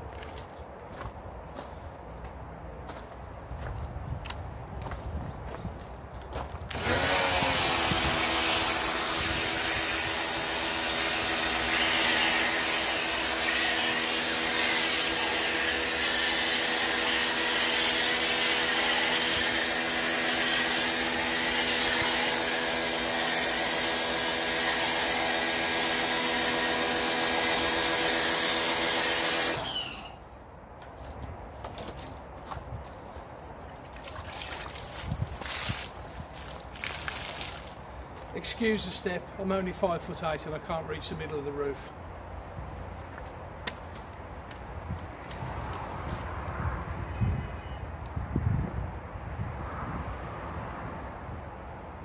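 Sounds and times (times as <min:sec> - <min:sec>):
pressure washer motor and pump: 0:06.7 - 0:30.2
hiss of spray: 0:14.8 - 0:25.7.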